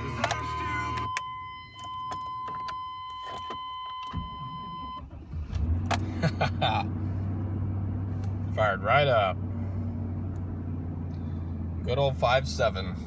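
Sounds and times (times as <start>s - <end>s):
car engine running: 0.0s - 2.5s, 4.1s - 13.0s
high electronic warning tone: 0.0s - 5.0s.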